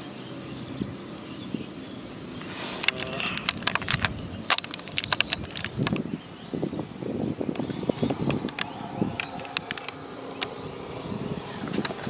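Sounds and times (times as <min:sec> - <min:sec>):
soft plastic rustling: 0:02.4 - 0:06.0
plastic tray crinkling: 0:02.8 - 0:06.0, 0:08.5 - 0:10.5.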